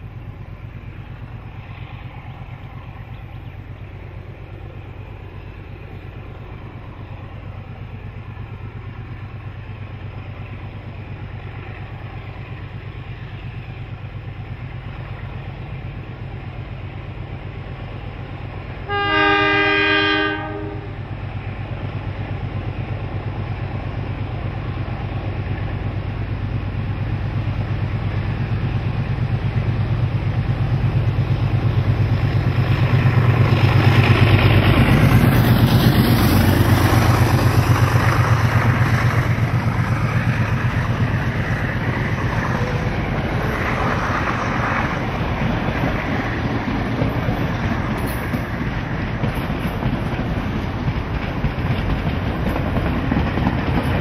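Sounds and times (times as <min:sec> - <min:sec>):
carriages rumbling over rails: 0:00.0 - 0:54.0
diesel locomotives throbbing: 0:00.0 - 0:54.0
locomotive horn blast: 0:18.9 - 0:21.0.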